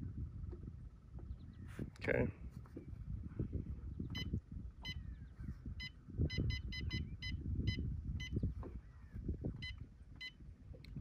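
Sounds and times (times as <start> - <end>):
low rumbling noise: 0.0 - 11.0
short high electronic beeps: 5.8 - 8.4.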